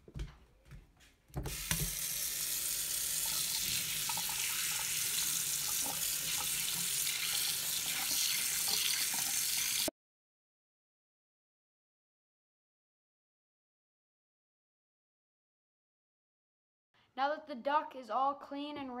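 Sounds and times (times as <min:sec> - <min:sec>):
water running into a sink: 0:01.4 - 0:09.9.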